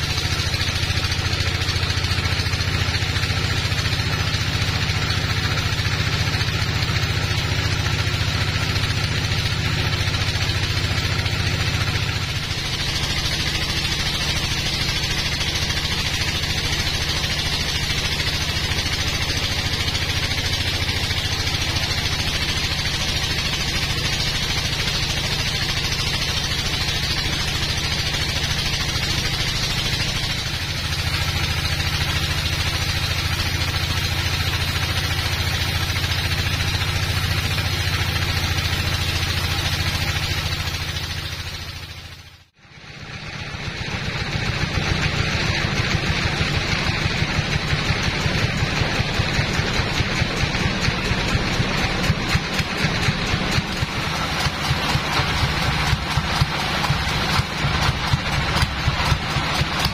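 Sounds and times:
motor hum: 0:00.0 - 0:59.9
band blade cutting wood: 0:46.8 - 0:59.9.

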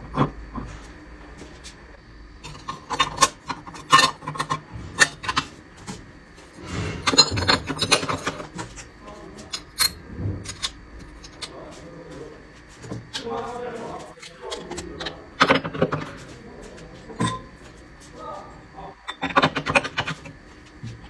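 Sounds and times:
metal rubbing and clatter: 0:02.4 - 0:12.0.

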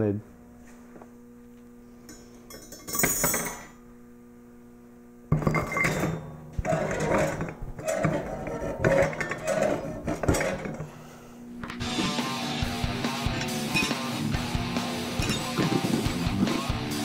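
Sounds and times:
faint steady hum: 0:00.0 - 0:11.9
metal tubes scraping and knocking: 0:05.4 - 0:10.9, 0:15.1 - 0:16.7
metal spring jingle: 0:13.2 - 0:14.2, 0:15.1 - 0:15.9.

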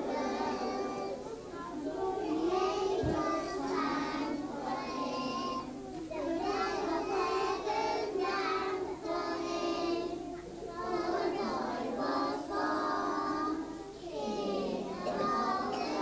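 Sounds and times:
children singing: 0:00.0 - 0:16.0.

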